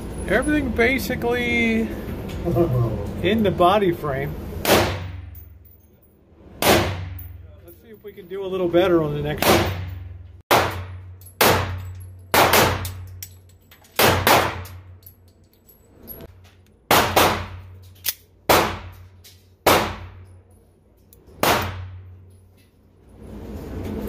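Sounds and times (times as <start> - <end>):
pistol shots echoing indoors: 9.4 - 13.1, 16.9 - 17.8, 18.5 - 19.0, 19.6 - 20.2, 21.4 - 22.1.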